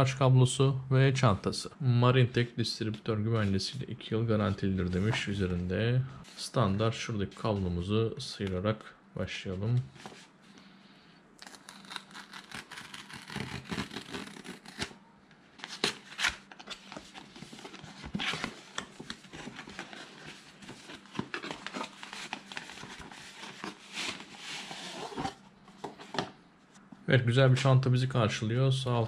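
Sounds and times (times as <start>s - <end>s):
packaging rustling and tearing: 11.4s - 15.0s, 15.6s - 25.4s.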